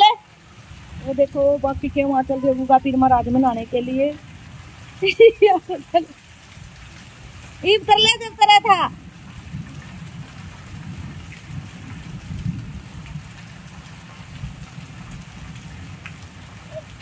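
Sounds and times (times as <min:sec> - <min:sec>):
rain splashing into standing water: 0:00.0 - 0:17.0.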